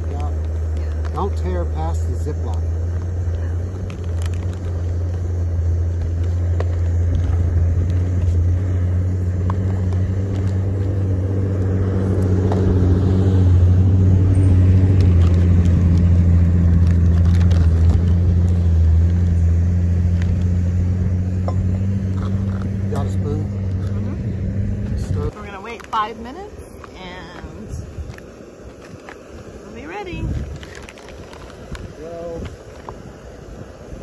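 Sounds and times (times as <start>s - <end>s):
wind buffeting microphone: 0.0s - 34.0s
foil pouches crinkling: 2.8s - 8.6s, 14.7s - 20.6s, 30.4s - 33.0s.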